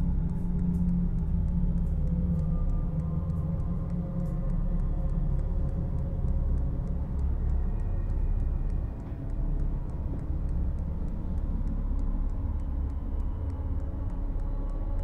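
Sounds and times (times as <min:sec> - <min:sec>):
low rumbling drone: 0:00.0 - 0:15.0.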